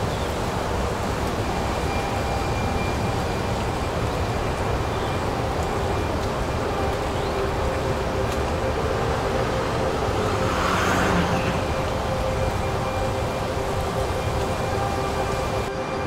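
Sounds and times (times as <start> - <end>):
street traffic hum: 0.0 - 15.8
vehicle passing close: 10.1 - 12.1.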